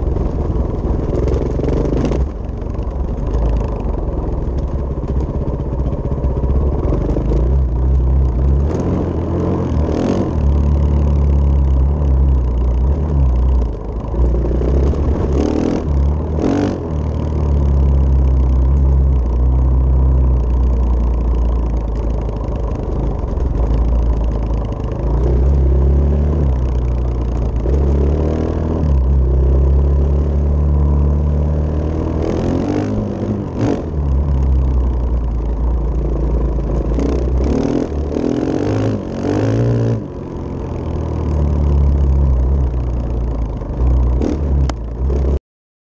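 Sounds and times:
dirt bike engine revving: 0:14.3 - 0:17.4, 0:31.8 - 0:33.9, 0:37.0 - 0:40.0, 0:44.2 - 0:44.6.

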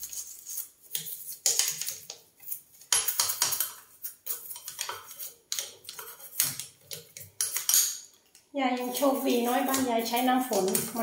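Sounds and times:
toothbrush scrubbing metal tap: 0:08.7 - 0:11.0.

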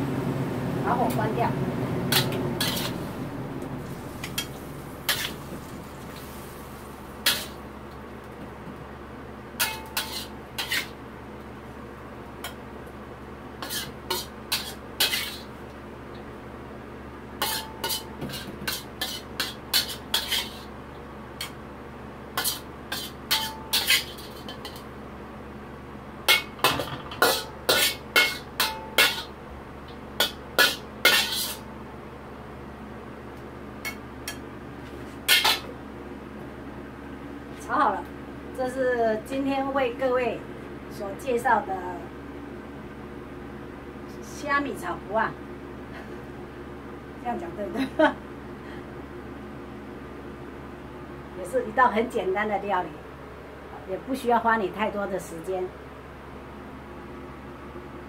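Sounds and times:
spatula scraping and clinking on wok: 0:02.1 - 0:03.0, 0:09.6 - 0:10.9, 0:13.6 - 0:15.5, 0:17.4 - 0:20.7, 0:22.4 - 0:24.8, 0:26.3 - 0:29.3, 0:30.2 - 0:31.6, 0:35.3 - 0:35.7.

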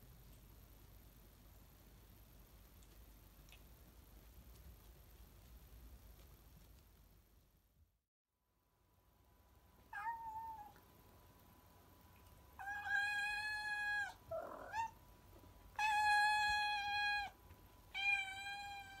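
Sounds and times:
cat meowing: 0:09.9 - 0:10.8, 0:12.6 - 0:15.0, 0:15.8 - 0:19.0.

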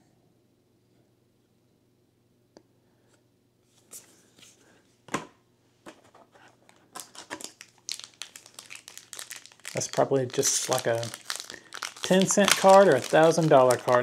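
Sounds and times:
foil wrapper crinkling: 0:06.8 - 0:14.0.

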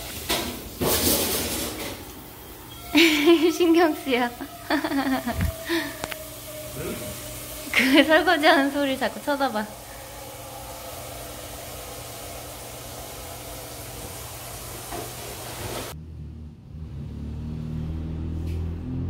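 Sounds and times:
water running from a tap: 0:02.9 - 0:16.0.

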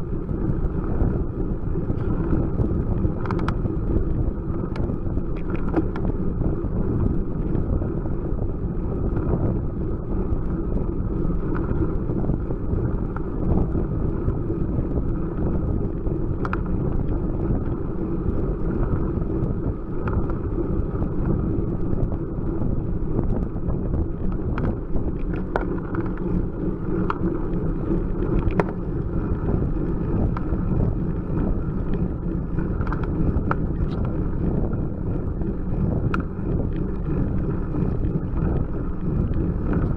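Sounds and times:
bicycle tyre noise on tarmac: 0:00.0 - 0:39.9
wind rumble on microphone: 0:00.0 - 0:39.9
small clicks and rattles: 0:01.9 - 0:07.6, 0:15.0 - 0:22.1, 0:23.2 - 0:39.9.

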